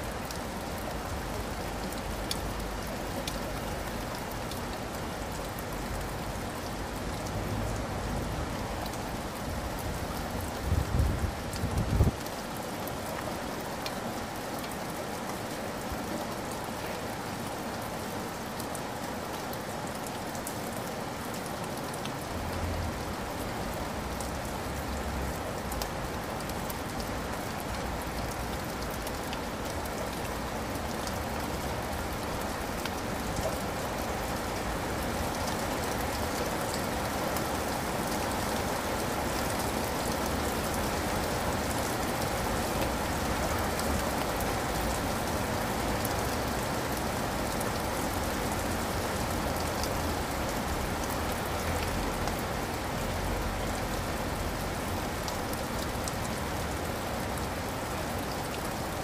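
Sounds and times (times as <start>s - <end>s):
steady rain: 0.0s - 59.0s.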